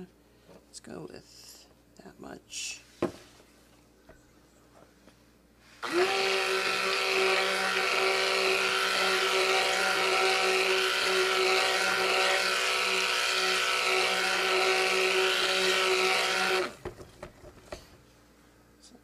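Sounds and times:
stick blender motor: 5.8s - 16.8s.

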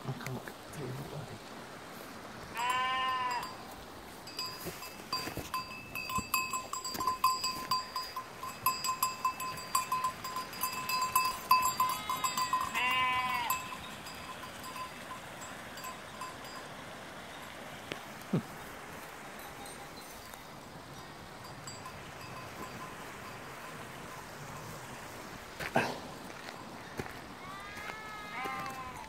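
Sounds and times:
sheep bleating: 2.5s - 3.5s, 11.8s - 13.7s, 27.4s - 29.0s
small bell clinking: 3.2s - 3.6s, 4.3s - 16.7s, 19.4s - 20.4s, 21.0s - 24.9s.

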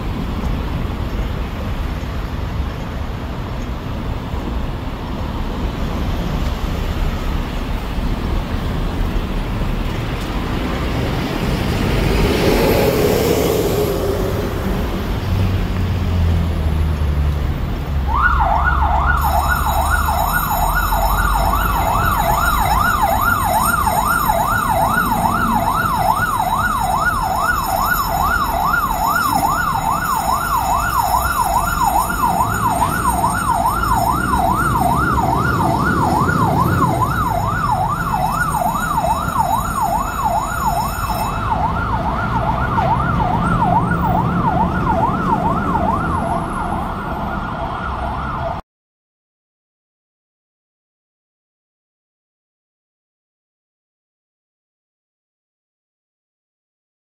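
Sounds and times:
truck engine: 4.0s - 48.0s
electronic yelp siren: 18.1s - 48.6s.

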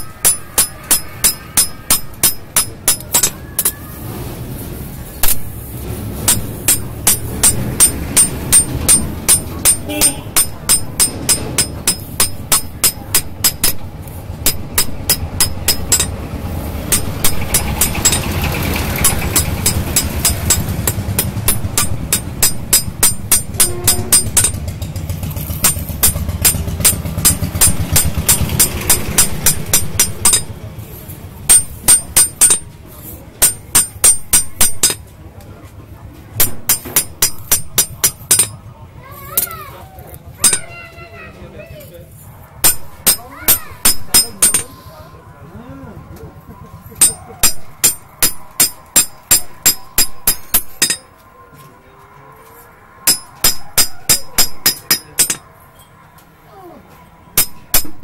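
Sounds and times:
hammer ringing on metal blade: 0.0s - 3.7s, 6.3s - 13.8s, 14.4s - 16.2s, 16.9s - 18.3s, 19.0s - 24.6s, 25.6s - 30.5s, 31.5s - 32.7s, 33.4s - 35.0s, 36.4s - 38.6s, 42.6s - 44.8s, 47.0s - 51.1s, 53.0s - 55.5s, 57.4s - 58.0s.

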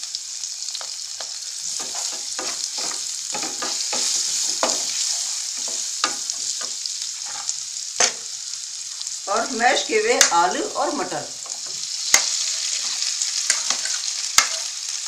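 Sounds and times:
onion sizzling in hot oil: 0.0s - 15.0s
spatula scraping a pan: 0.8s - 8.3s, 11.4s - 15.0s.

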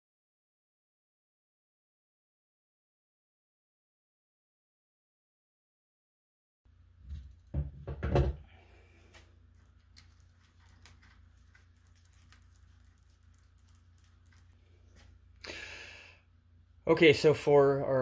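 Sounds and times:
low steady hum: 6.7s - 18.0s.

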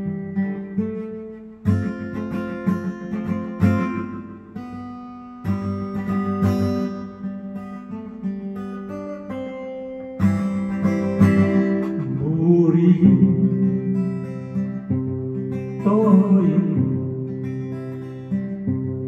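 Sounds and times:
acoustic guitar strummed and picked: 0.0s - 19.0s
man singing: 11.5s - 14.6s, 15.8s - 17.1s.

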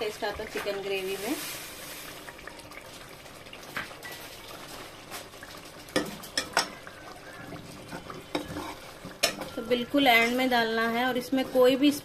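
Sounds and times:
curry simmering with faint sizzle: 0.0s - 12.0s.

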